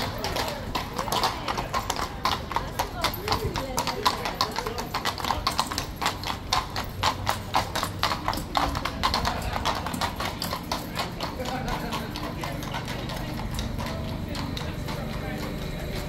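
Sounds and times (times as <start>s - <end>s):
horse hooves on stone paving: 0.0s - 16.0s.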